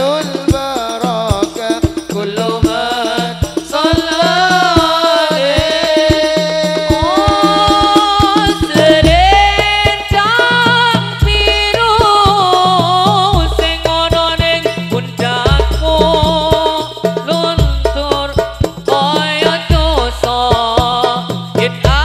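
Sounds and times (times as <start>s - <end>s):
frame drums rhythm: 0.0s - 22.0s
men singing into microphones: 0.0s - 22.0s
deep bass drum booms: 6.2s - 19.1s, 19.7s - 22.0s.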